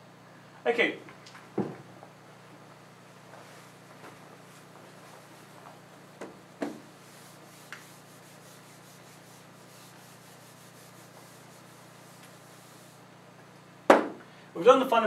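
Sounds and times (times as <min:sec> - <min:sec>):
eraser rubbing whiteboard: 0:06.6 - 0:13.1
sharp knocks: 0:13.9 - 0:14.2.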